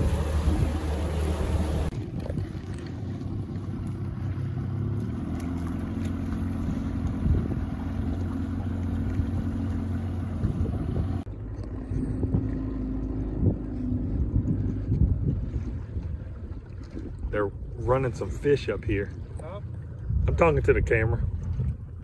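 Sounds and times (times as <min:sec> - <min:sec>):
wind on microphone: 0:00.0 - 0:04.2, 0:06.3 - 0:17.9, 0:19.6 - 0:22.0
boat motor running: 0:00.0 - 0:22.0.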